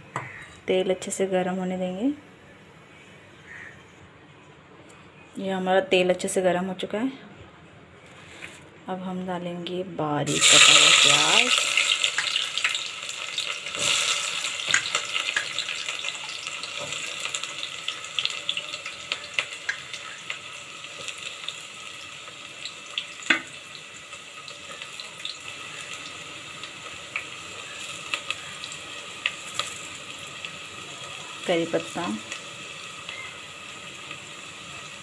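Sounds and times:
onions sizzling in hot oil: 10.3 - 35.0
oil crackling: 10.4 - 35.0.

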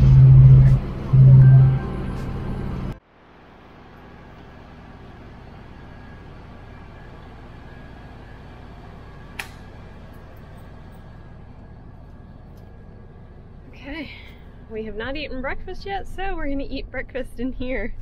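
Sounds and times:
ferry engine rumble: 0.0 - 18.0.

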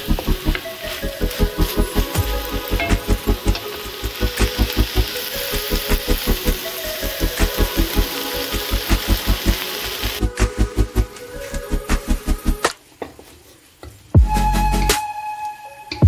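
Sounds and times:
background music with quick beat: 0.0 - 5.1, 14.2 - 15.2
stir-fry sizzling in a wok: 0.0 - 12.6.

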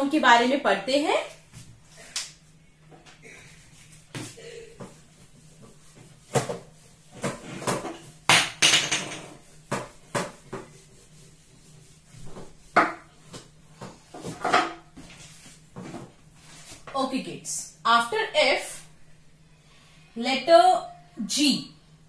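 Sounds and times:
duster scrubbing whiteboard: 3.8 - 8.3, 9.3 - 16.9.

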